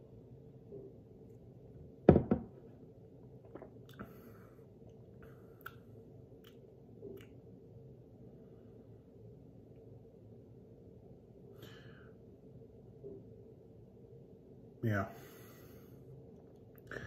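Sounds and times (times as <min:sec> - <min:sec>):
thumps: 0:02.1 - 0:02.6
lip smacks: 0:05.6 - 0:07.4.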